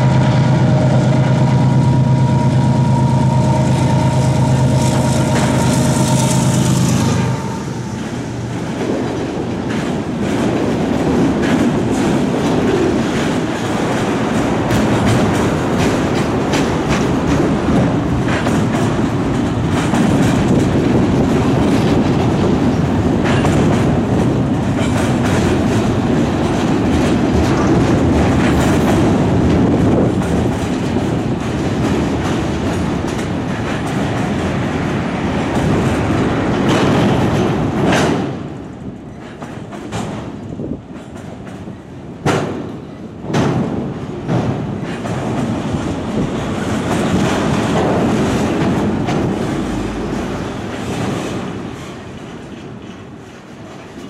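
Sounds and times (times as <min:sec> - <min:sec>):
rumble of rail wheels: 0:00.0 - 0:54.0
clickety-clack of wheel clicks: 0:08.7 - 0:34.7, 0:35.4 - 0:49.6.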